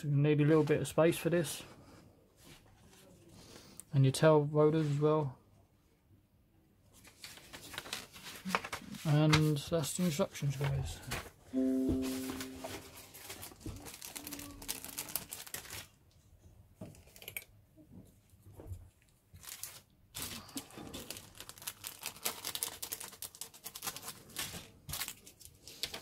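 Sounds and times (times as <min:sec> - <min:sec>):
plastic bag crinkling: 0:12.4 - 0:16.0, 0:19.4 - 0:26.0.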